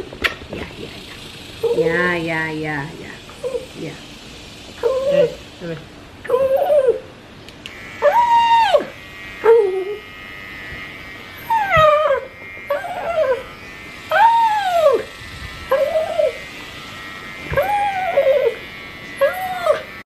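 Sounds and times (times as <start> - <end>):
electric pet clipper humming: 0.0 - 20.0
small dog whining: 3.4 - 3.8, 4.8 - 5.4, 6.3 - 7.1, 8.0 - 10.1, 11.4 - 15.1, 15.7 - 16.5, 17.5 - 20.0.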